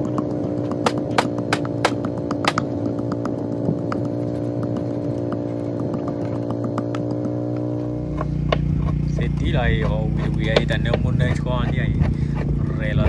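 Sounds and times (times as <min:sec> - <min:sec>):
motor running steadily: 0:00.0 - 0:13.0.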